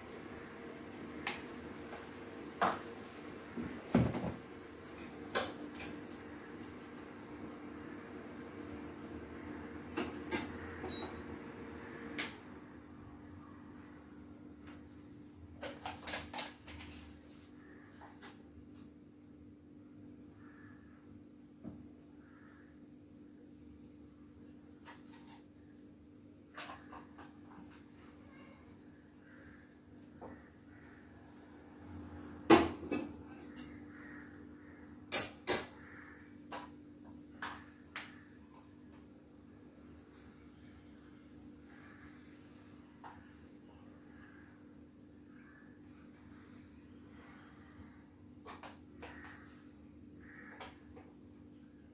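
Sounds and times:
steady low hum: 25.5 - 51.9.

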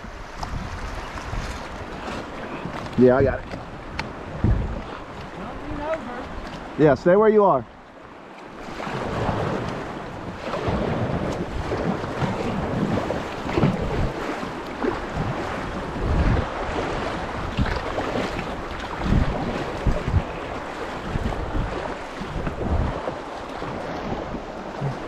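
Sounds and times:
wind buffeting microphone: 0.0 - 7.6, 8.6 - 25.0
paddle splashes: 0.0 - 25.0.

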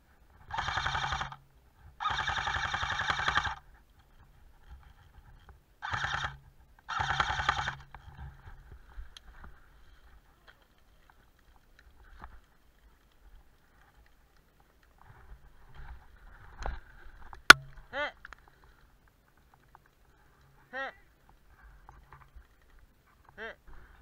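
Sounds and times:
airsoft rifle bursts: 0.5 - 1.4, 2.0 - 3.6, 5.8 - 7.9.

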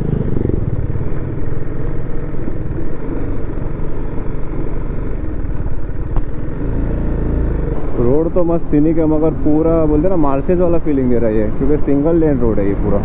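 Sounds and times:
motorcycle engine running: 0.0 - 8.3
road and wind noise: 0.0 - 13.0.

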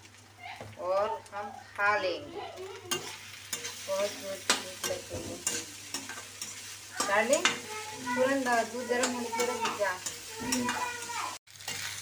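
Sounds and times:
rice frying and sizzling: 0.0 - 12.0
metal spatula scraping a pan: 2.9 - 12.0.

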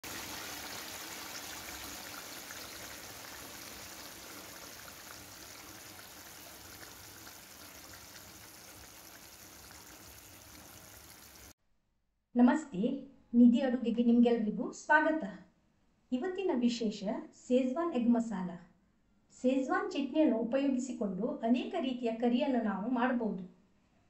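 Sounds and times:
gravy bubbling and popping: 0.0 - 11.5.

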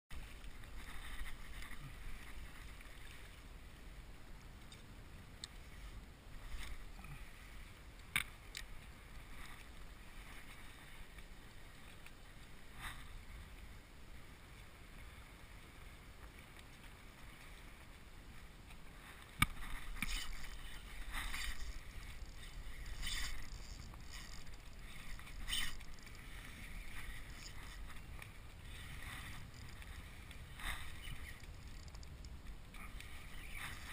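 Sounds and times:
water lapping against kayak hull: 0.2 - 33.9
fishing reel cranking: 19.8 - 27.9, 28.8 - 32.2.

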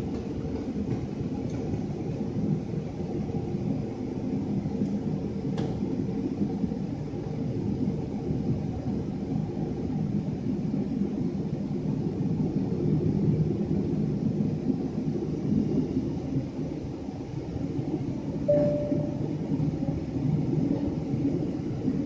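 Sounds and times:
jet engines idling in cabin: 0.0 - 22.0
short ringing tone: 18.5 - 19.3.

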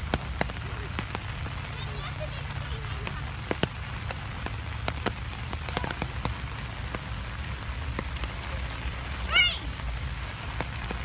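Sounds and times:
raindrops ticking close by: 0.0 - 11.0
steady rain hiss: 0.0 - 11.0.

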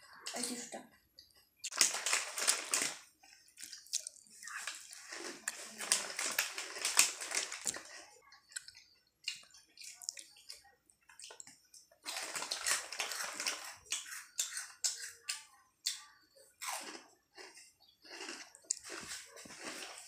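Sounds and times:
foil bag crinkling: 1.7 - 3.1, 4.5 - 8.0, 12.0 - 13.8
crunching crisp chips: 1.7 - 16.0, 16.6 - 20.0.

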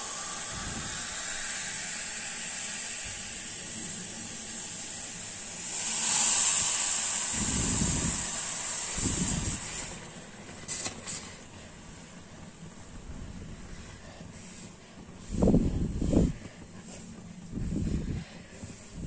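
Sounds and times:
tea sizzling in hot clay pot: 0.0 - 9.9.

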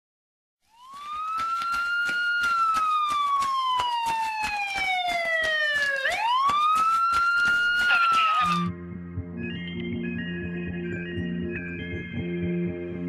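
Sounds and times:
siren wailing: 0.7 - 8.8
rapid sharp ticks: 1.0 - 8.6.

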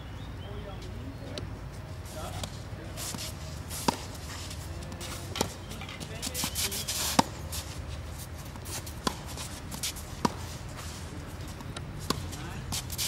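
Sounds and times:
shoes scuffing on court: 2.1 - 13.0
tennis ball hitting rackets: 2.3 - 13.0.

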